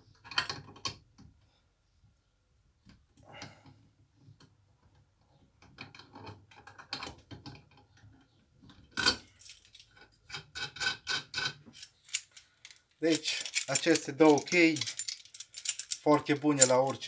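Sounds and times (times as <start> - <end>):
metal clatter: 11.8 - 17.0.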